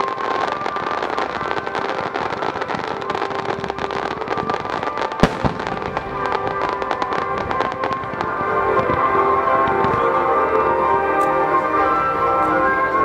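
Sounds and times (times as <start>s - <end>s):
underwater fireworks crackling: 0.0s - 10.7s
background music: 0.0s - 13.0s
loud bang: 5.2s - 6.7s.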